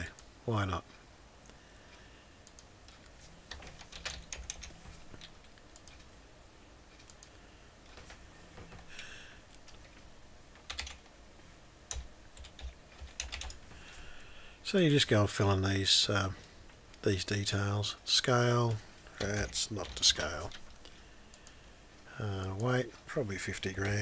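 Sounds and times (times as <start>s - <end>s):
faint computer keyboard typing: 2.0s - 6.1s, 6.9s - 8.9s, 9.5s - 11.1s, 11.9s - 13.7s, 19.1s - 21.6s.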